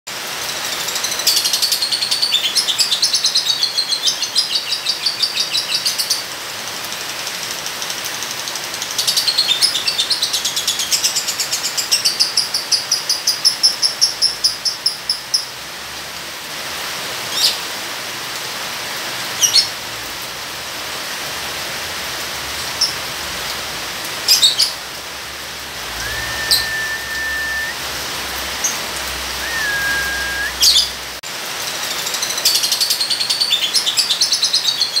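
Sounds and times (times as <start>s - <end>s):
rain hiss: 0.1s - 35.0s
low held whistle: 25.9s - 27.8s, 29.4s - 30.8s
bird chattering trills: 26.0s - 27.7s
sharp bird chirps: 26.0s - 27.8s, 29.4s - 30.9s.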